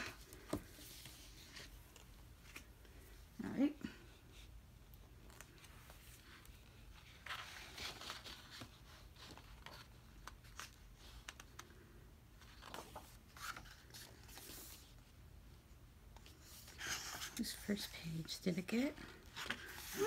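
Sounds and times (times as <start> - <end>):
photobook pages turning: 12.4 - 14.9, 19.0 - 20.0.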